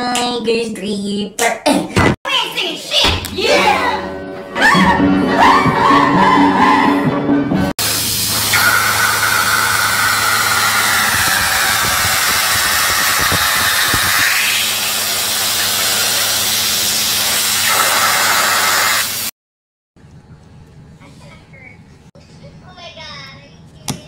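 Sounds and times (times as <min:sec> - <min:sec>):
loud steady hissing: 0:07.8 - 0:19.3.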